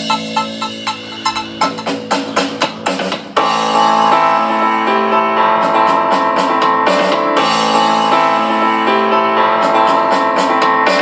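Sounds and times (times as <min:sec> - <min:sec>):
crisp high percussion beat: 0:00.0 - 0:04.3
keyboard chords: 0:00.0 - 0:11.0.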